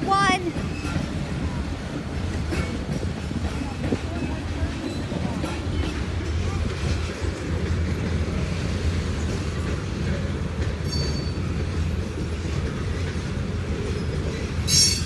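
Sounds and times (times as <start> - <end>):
freight train rumbling past: 0.0 - 15.0
train wheels squealing: 0.6 - 1.2, 3.6 - 6.0, 10.7 - 12.6, 13.8 - 15.0.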